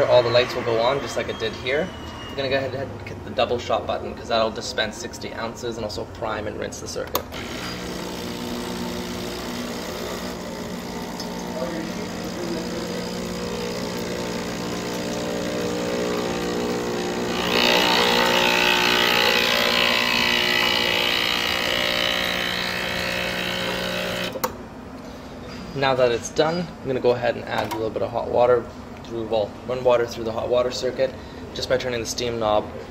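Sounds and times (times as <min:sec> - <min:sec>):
espresso machine pump buzzing: 0:00.0 - 0:02.5, 0:07.2 - 0:24.6.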